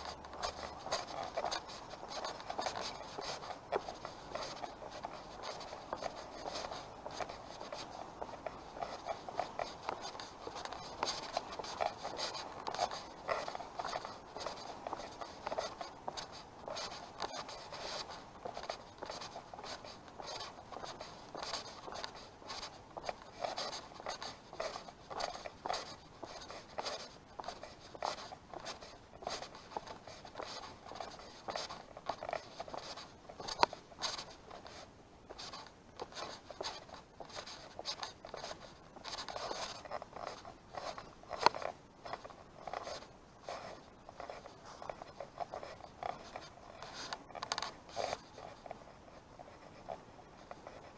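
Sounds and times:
footsteps on dry leaves: 0.0s - 34.3s
camera rubbing on clothing: 0.0s - 50.9s.

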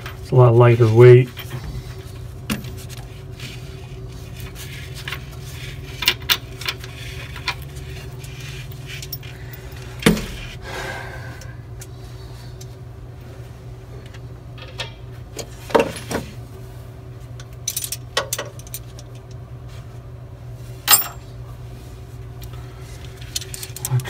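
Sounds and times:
steady low hum: 0.0s - 24.0s
metal parts clinking on steel frame: 17.6s - 19.1s, 20.9s - 21.2s.

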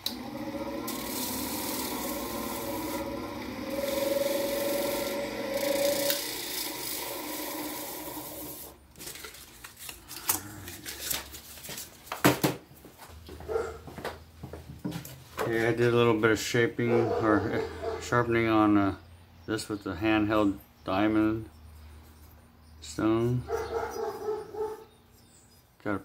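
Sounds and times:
bench grinder motor hum: 0.0s - 8.8s.

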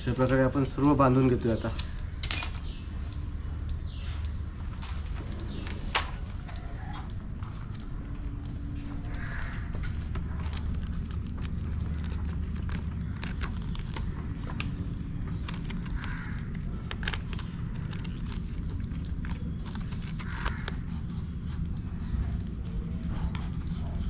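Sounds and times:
low rumble: 2.0s - 24.0s
crab shells clicking and tapping: 9.1s - 20.8s.

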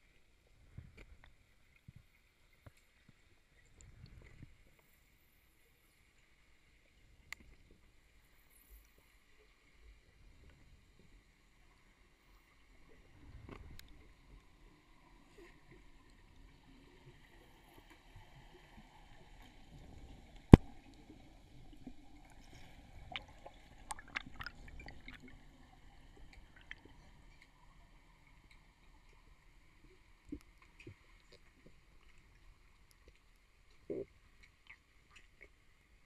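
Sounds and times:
underwater water movement: 7.4s - 36.0s
clicks and knocks underwater: 13.2s - 14.4s, 19.6s - 27.6s.

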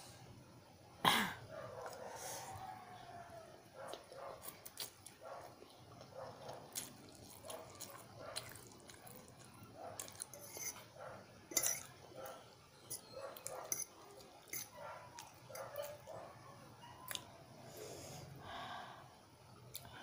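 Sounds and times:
chewing: 3.8s - 10.9s, 11.5s - 16.2s, 17.0s - 17.3s.

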